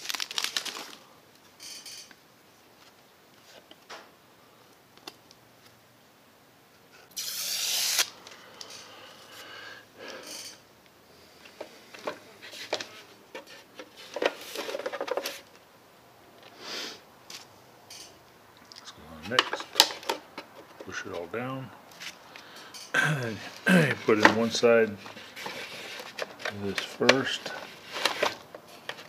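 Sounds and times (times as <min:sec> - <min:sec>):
plastic lens rubbing and scraping: 0:24.0 - 0:29.0.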